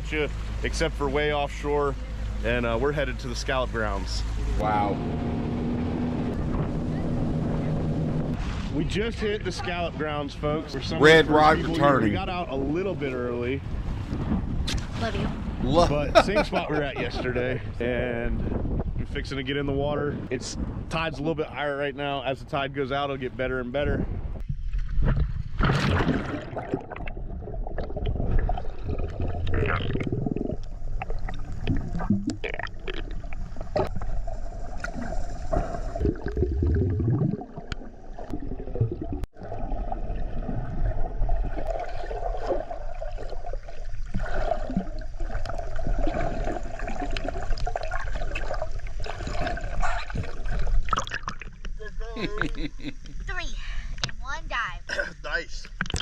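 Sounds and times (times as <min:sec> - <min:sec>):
steady underwater drone: 0:00.0 - 0:14.6, 0:25.6 - 0:54.0
muffled water churning and bubbling: 0:00.0 - 0:21.1, 0:24.0 - 0:51.8.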